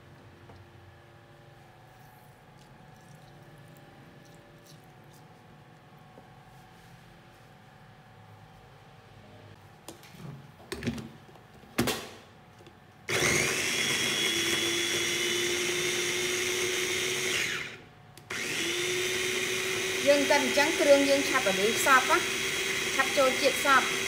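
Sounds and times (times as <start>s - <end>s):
food chopper motor whine: 13.1s - 24.0s.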